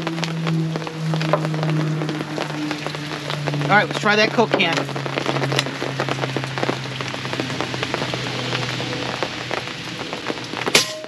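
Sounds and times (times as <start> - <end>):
heavy rain on fabric canopy: 0.0 - 11.0.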